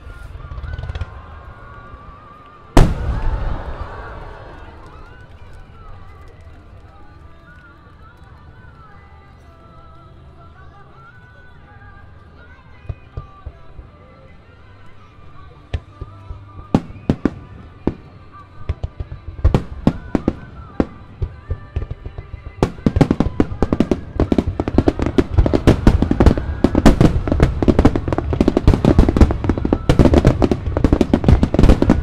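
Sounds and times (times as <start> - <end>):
fireworks crackling bursts: 0.0 - 9.0, 15.8 - 32.0
fireworks booms: 2.8 - 5.6, 19.6 - 32.0.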